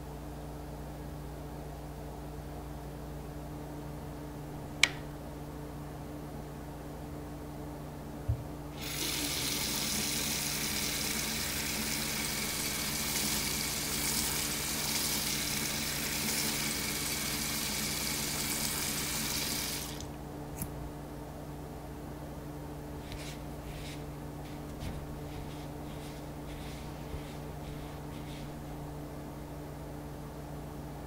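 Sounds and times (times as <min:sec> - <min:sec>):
small click: 0:04.8 - 0:05.1
faucet water splashing into basin: 0:08.8 - 0:20.1.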